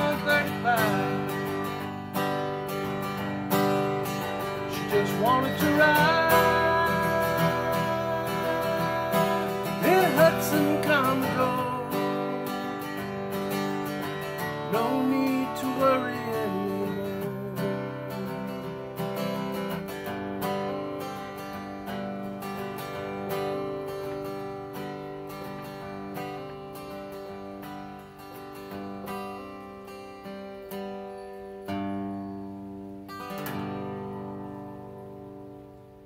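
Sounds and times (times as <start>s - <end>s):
acoustic guitar strumming chords: 0.0s - 36.0s.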